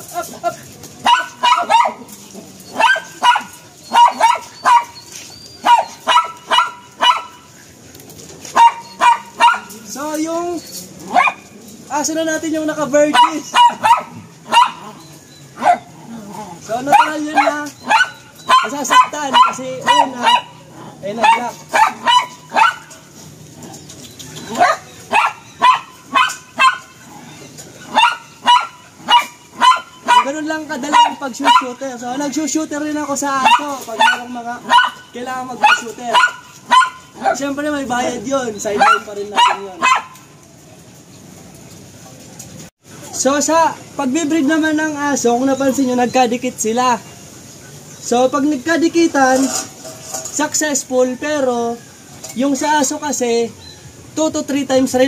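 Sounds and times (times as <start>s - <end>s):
dog barking high-pitched: 1.0s - 2.1s, 2.7s - 7.5s, 8.5s - 9.8s, 11.1s - 11.5s, 13.1s - 15.0s, 15.6s - 15.9s, 16.8s - 23.0s, 24.4s - 27.0s, 27.9s - 31.8s, 33.1s - 37.5s, 38.8s - 40.3s.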